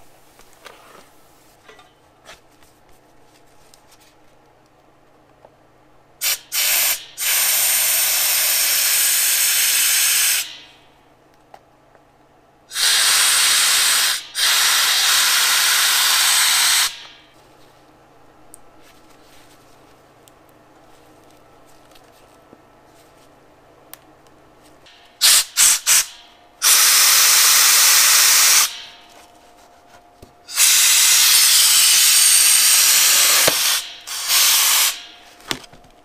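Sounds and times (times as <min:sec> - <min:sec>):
compressed air blow gun hissing: 0:06.2 - 0:10.6, 0:12.7 - 0:17.2, 0:25.2 - 0:28.9, 0:30.5 - 0:35.1.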